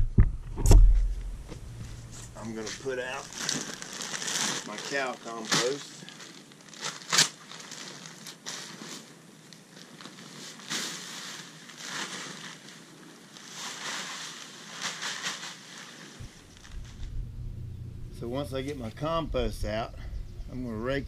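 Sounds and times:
plastic bag crinkling: 1.8 - 17.3.

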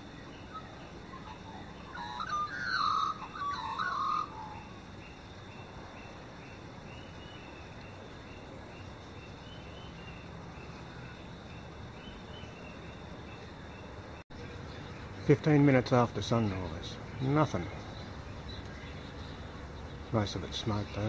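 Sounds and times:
small distant bird calls: 0.0 - 21.0
magpie warbling call: 0.4 - 4.8.

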